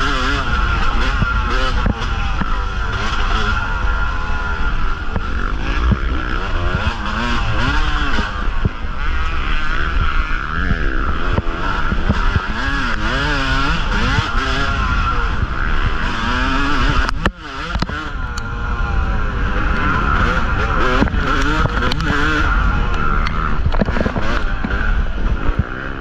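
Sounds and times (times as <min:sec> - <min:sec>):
dirt bike engine revving: 0:00.0 - 0:26.0
knocks and clatters: 0:23.3 - 0:25.7.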